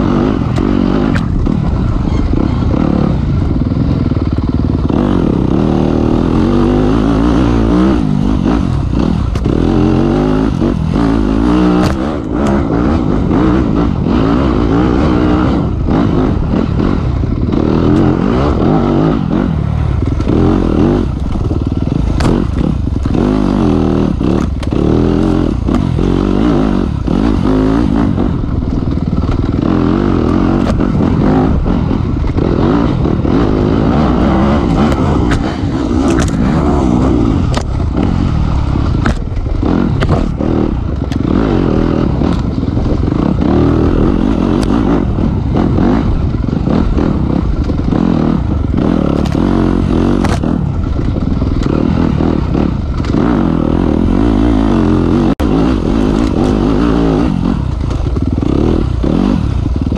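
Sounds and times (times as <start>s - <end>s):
dirt bike engine revving: 0.0s - 59.9s
bike clattering over bumps: 38.8s - 41.3s.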